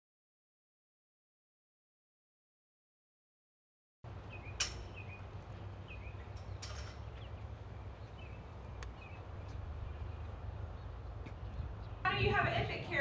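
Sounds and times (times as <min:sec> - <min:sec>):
birds chirping: 0:04.1 - 0:13.0
steady low rumble: 0:04.1 - 0:13.0.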